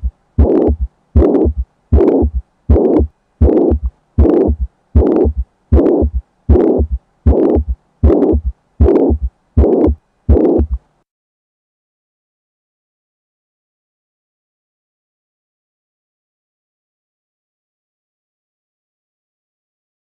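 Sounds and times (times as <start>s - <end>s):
heart beating with murmur: 0.0s - 10.8s.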